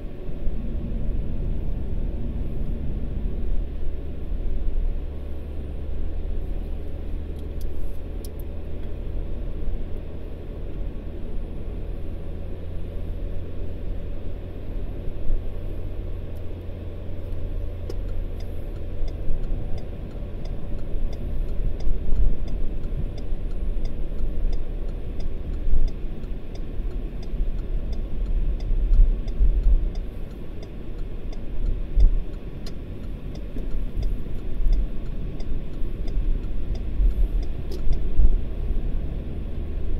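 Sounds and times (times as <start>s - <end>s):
car road and engine rumble: 0.0s - 39.9s
light regular ticking: 16.3s - 38.6s.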